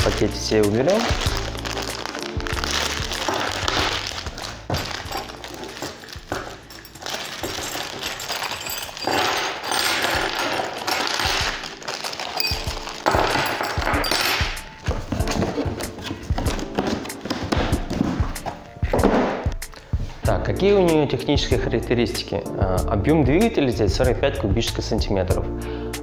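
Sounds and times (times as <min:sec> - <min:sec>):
plastic bags rustling and crinkling: 0:00.0 - 0:18.7
things knocking on a table: 0:13.0 - 0:19.5.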